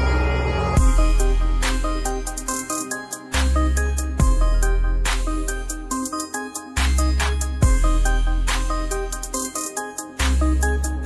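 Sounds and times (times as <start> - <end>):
deep bass: 0.0 - 2.5, 3.4 - 5.9, 6.8 - 9.2
held synth notes: 0.0 - 10.2.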